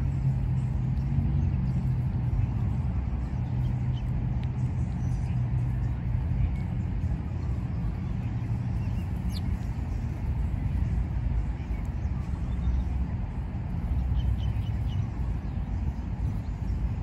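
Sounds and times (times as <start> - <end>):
low outdoor rumble: 0.0 - 17.0
faint high bird chirps: 8.8 - 9.6.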